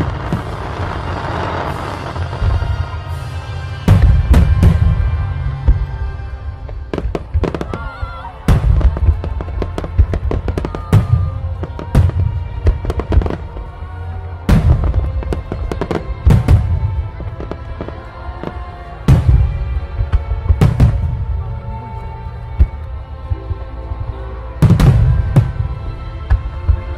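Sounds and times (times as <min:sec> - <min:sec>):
fireworks bursting with loud bangs: 0:00.0 - 0:26.9
music playing: 0:00.0 - 0:26.9.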